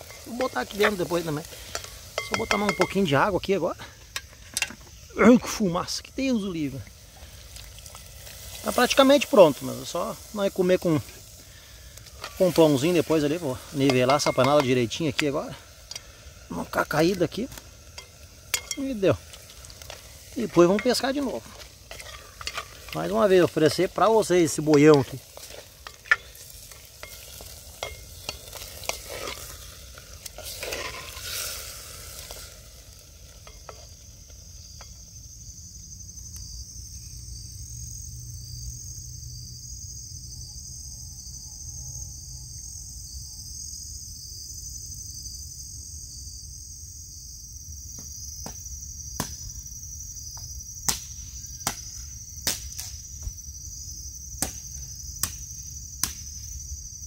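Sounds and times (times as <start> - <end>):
stirring: 0.0 - 3.1, 18.0 - 31.5
crickets chirping: 0.0 - 57.0
food sizzling in a pot: 0.0 - 57.0.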